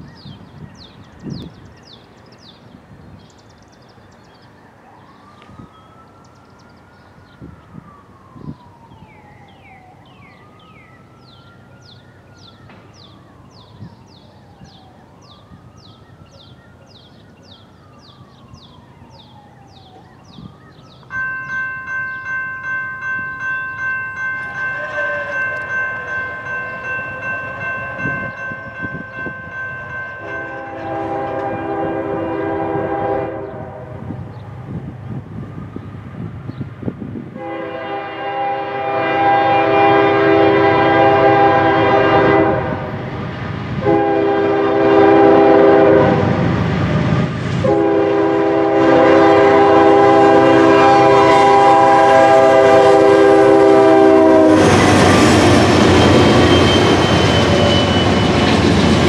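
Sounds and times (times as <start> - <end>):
siren wailing: 4.6 - 34.2, 44.0 - 59.0
high chirps: 15.3 - 31.1
locomotive horn chord: 23.3 - 34.2, 37.4 - 43.0, 43.8 - 46.4, 47.6 - 58.4.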